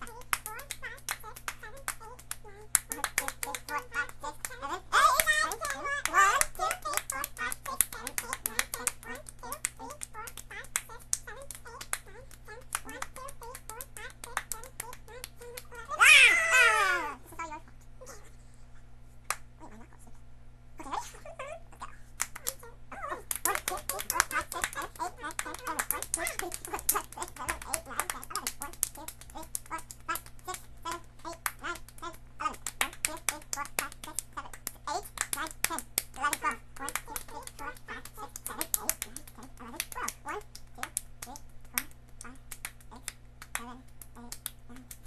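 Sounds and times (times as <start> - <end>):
rapid palm claps: 0.0 - 16.8, 22.1 - 45.0
children chanting syllables: 0.0 - 17.2
young voices: 0.0 - 18.2, 20.8 - 45.0.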